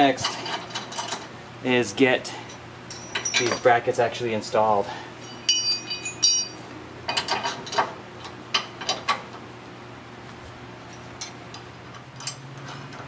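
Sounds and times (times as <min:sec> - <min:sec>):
metal brackets clinking: 0:02.4 - 0:04.0, 0:05.2 - 0:07.9, 0:11.0 - 0:13.0.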